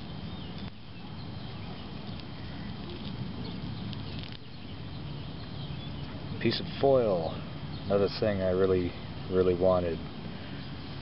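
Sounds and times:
steady outdoor hiss: 0:00.0 - 0:11.0
faint small ticks: 0:00.4 - 0:00.8
fingers scratching through soil: 0:01.6 - 0:04.6.

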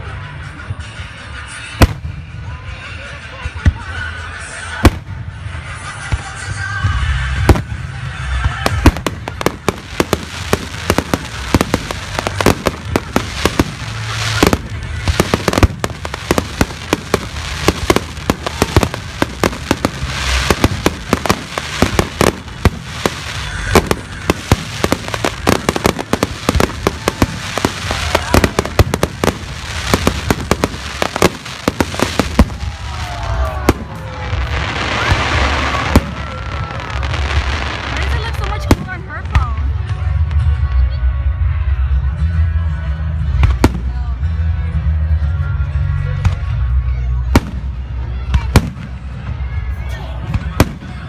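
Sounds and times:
fireworks bangs and crackles: 0:01.7 - 0:40.7, 0:43.1 - 0:44.1, 0:46.2 - 0:51.0.

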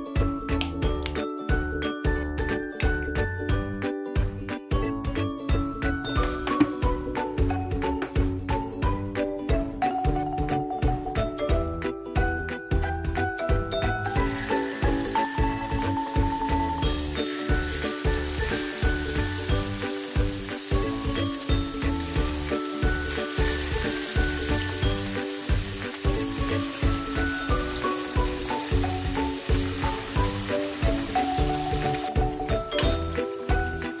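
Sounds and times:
background music with beat: 0:00.0 - 0:34.0
chicken deep-frying in oil: 0:13.8 - 0:34.0.

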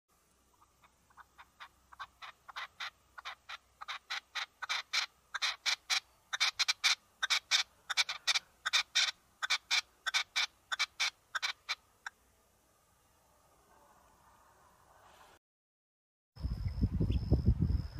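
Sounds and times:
partridge calling: 0:00.5 - 0:12.2.

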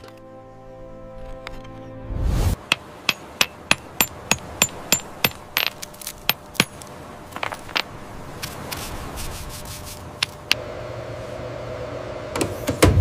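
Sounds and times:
hammer tapping stone: 0:02.6 - 0:06.8
scraping on stone: 0:05.2 - 0:10.6
stiff brush sweeping stone: 0:05.5 - 0:10.6.

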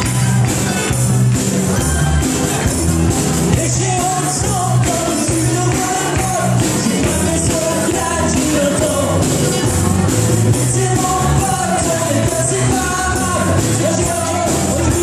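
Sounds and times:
person singing: 0:03.5 - 0:15.0.

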